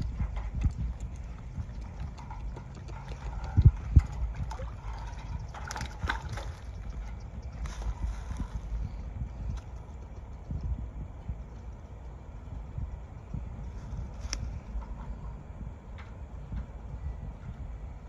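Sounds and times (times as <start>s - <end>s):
water sloshing: 0.0s - 8.6s.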